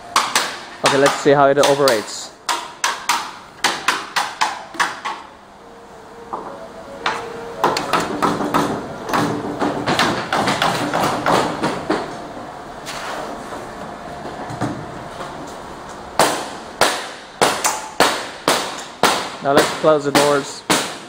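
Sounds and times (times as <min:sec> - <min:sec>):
sharp knocks: 0:07.6 - 0:12.1.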